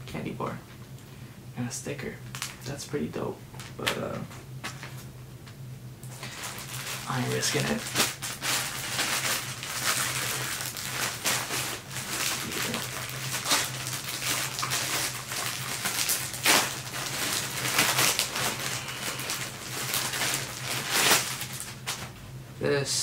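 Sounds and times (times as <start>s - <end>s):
packaging rustling and crinkling: 2.3s - 2.7s, 6.0s - 22.2s
packaging tearing: 6.1s - 22.1s.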